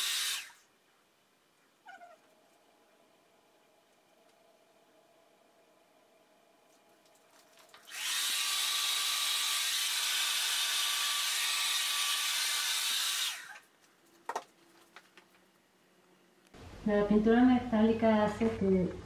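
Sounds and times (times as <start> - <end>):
hair dryer running: 7.9 - 13.5.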